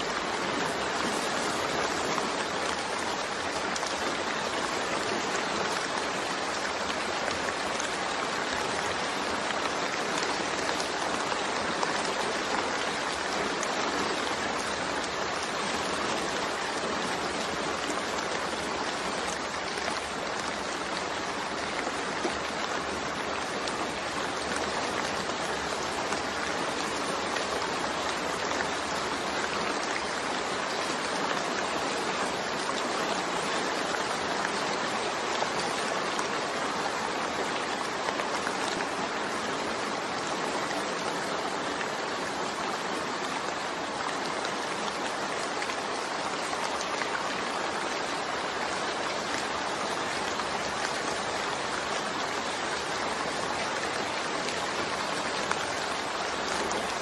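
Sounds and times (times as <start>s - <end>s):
steady rain: 0.0s - 57.0s.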